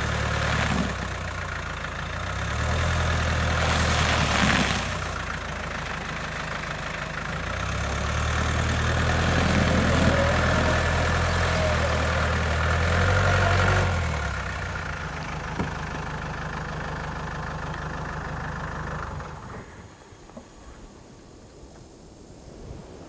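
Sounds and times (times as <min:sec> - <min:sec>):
car engine idling: 0:00.0 - 0:20.4
faint wind noise: 0:19.3 - 0:23.0.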